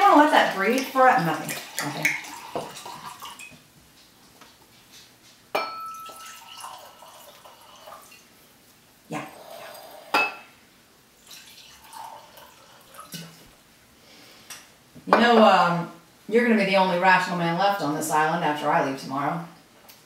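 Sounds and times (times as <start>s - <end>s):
glass clinking: 5.5s - 6.9s, 9.7s - 10.5s.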